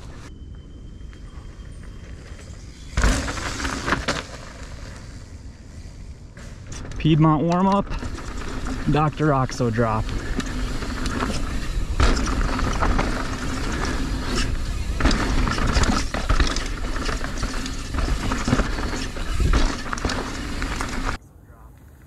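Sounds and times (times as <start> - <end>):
bike rattling: 1.6 - 21.2
tyres rumbling over dirt: 2.2 - 5.3, 6.4 - 21.2.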